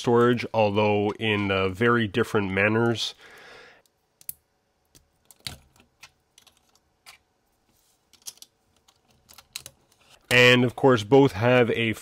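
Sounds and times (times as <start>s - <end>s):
plastic toy parts clicking: 8.1s - 10.0s.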